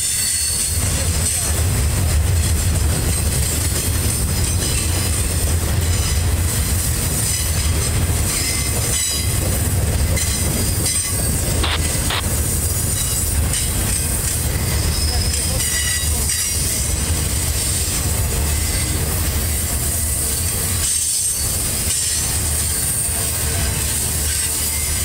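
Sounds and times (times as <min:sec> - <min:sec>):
high wheel squeal: 0:00.0 - 0:00.9, 0:07.2 - 0:16.9, 0:17.5 - 0:25.0
train freight cars rumbling: 0:00.0 - 0:25.0.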